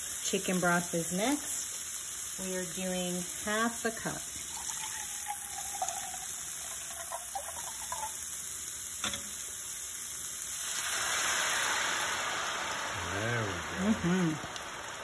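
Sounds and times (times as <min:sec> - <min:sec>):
broth sizzling in skillet: 0:00.0 - 0:15.0
liquid trickling into cup: 0:04.5 - 0:08.2.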